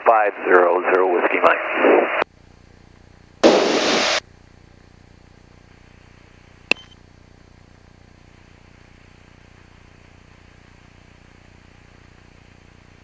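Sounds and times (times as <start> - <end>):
radio static burst: 0.0 - 2.2, 3.4 - 4.2
sharp click: 6.7 - 7.0.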